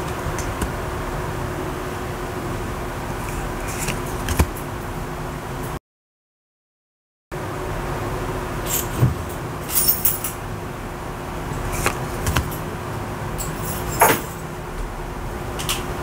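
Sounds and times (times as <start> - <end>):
cards tapping and rustling: 3.7 - 4.5, 11.7 - 12.5
background hum: 7.9 - 16.0.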